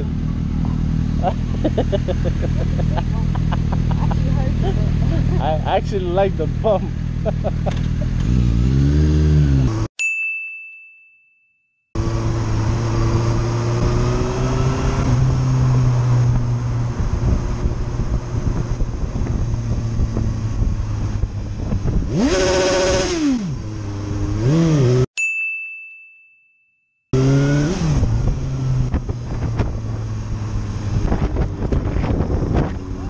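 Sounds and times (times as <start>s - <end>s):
motorcycle engine: 0.0s - 9.9s, 12.0s - 25.1s, 27.2s - 33.0s
bell-like ding: 10.0s - 11.7s, 25.2s - 26.9s.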